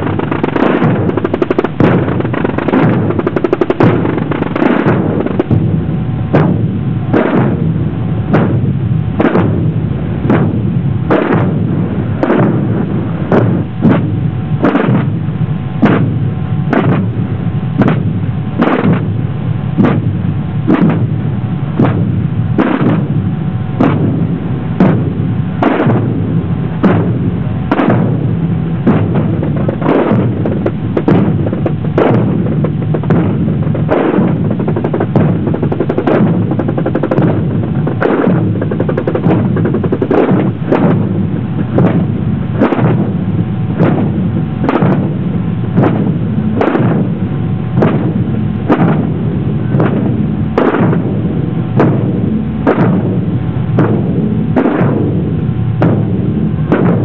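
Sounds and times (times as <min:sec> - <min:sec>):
snare drums rolling rattle: 0:00.0 - 0:05.7, 0:28.8 - 0:47.2, 0:47.8 - 0:57.0
bass drum beat: 0:47.8 - 0:57.0.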